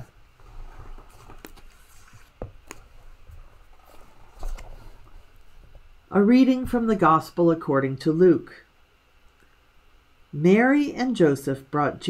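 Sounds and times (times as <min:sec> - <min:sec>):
book handling clicks and taps: 0:01.1 - 0:03.0.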